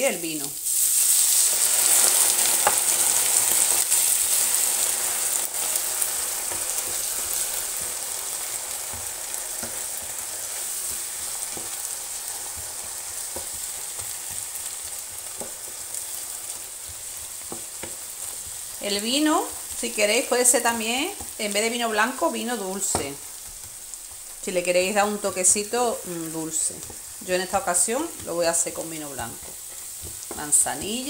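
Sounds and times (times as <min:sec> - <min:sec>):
food sizzling in frying pan: 0:00.0 - 0:31.0
wooden spoon knocking pan: 0:12.4 - 0:15.9, 0:16.5 - 0:21.4, 0:26.8 - 0:31.0.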